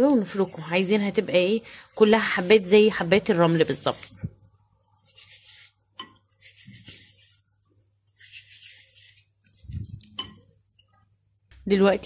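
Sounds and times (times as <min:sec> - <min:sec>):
hands rubbing flour in bowl: 0:00.1 - 0:04.2, 0:04.8 - 0:10.2.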